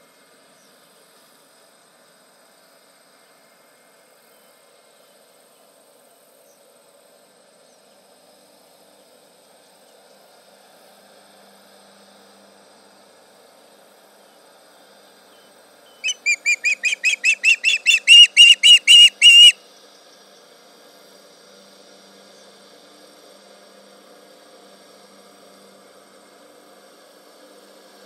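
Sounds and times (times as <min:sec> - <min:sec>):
osprey whistled calls: 0:15.9 - 0:19.6.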